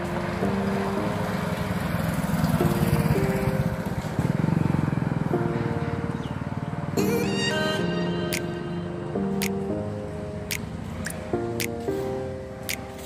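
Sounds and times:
slow sustained chords music: 0.0 - 13.0
motorcycle engine passing: 0.2 - 7.5.

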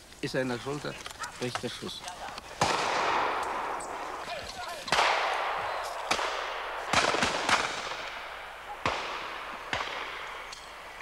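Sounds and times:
shotgun shots echoing: 2.6 - 4.1, 4.8 - 10.5.

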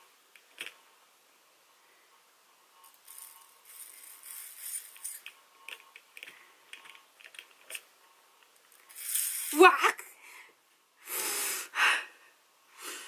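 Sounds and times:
beads clicking in spinning bowl: 2.8 - 7.6, 8.7 - 9.6.

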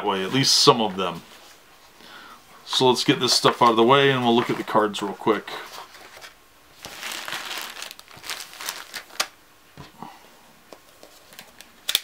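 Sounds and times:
plastic bags crinkling: 3.3 - 9.4.

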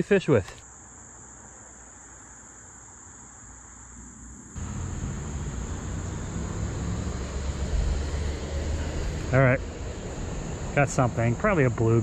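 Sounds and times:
insects droning: 0.0 - 12.0.

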